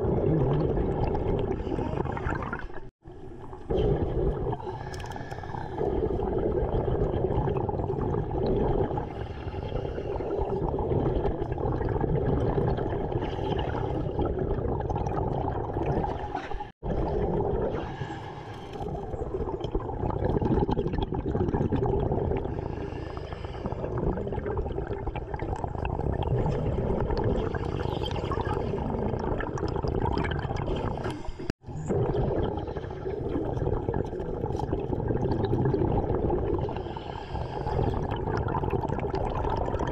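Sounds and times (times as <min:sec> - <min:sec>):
exhaled bubbles gurgling: 0:00.0 - 0:39.9
diver breathing underwater: 0:03.7 - 0:07.3, 0:08.6 - 0:10.9, 0:17.5 - 0:19.6, 0:22.0 - 0:24.7, 0:26.1 - 0:31.6, 0:36.0 - 0:38.9.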